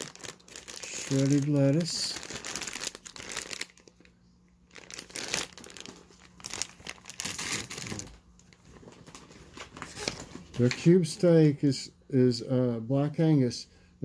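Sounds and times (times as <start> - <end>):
plastic and paper bag crinkling: 0.0 - 4.1, 4.7 - 10.8.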